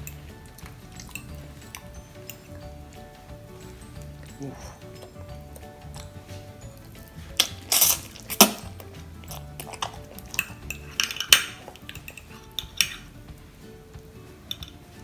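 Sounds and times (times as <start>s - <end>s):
chewing noodles: 3.9s - 13.1s
fork clinking on glass dish: 7.4s - 13.1s.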